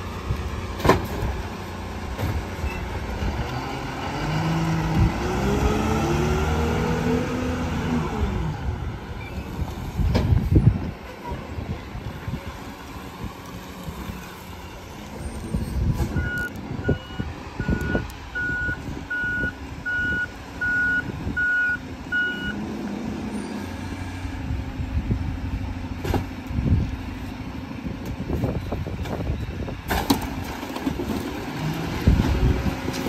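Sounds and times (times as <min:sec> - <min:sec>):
reversing alarm beeping: 0:16.2 - 0:22.6.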